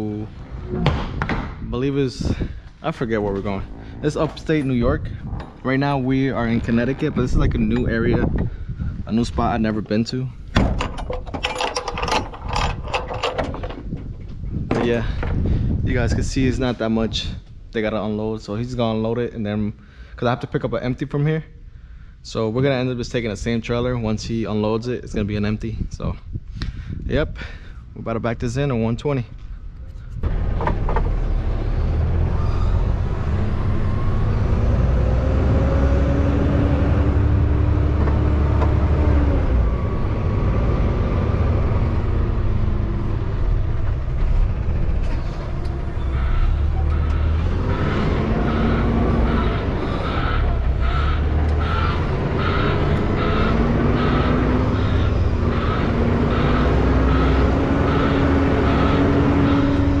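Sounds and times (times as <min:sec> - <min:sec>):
truck diesel engine running: 0:30.2 - 1:00.0.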